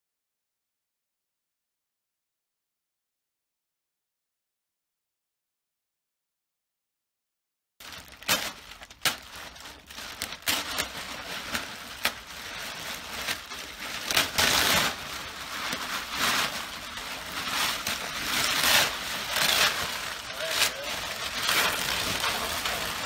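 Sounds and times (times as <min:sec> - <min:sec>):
foil crackling and rustling: 0:07.8 - 0:23.0.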